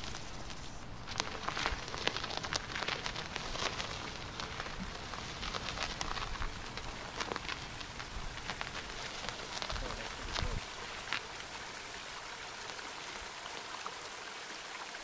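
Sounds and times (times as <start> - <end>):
crackling and clicking: 0.0 - 11.4
steady hiss: 0.0 - 13.9.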